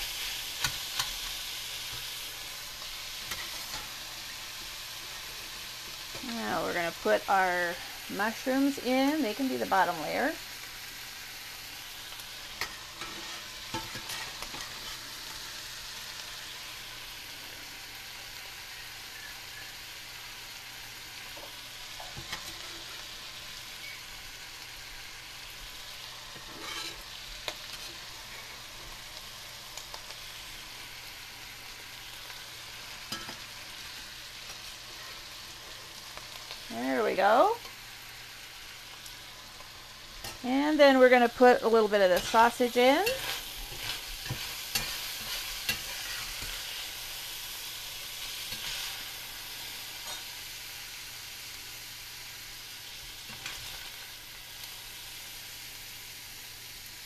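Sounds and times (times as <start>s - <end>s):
food sizzling in skillets: 0.0s - 57.0s
utensils scraping pans: 12.6s - 15.4s, 26.4s - 27.1s, 42.0s - 46.8s.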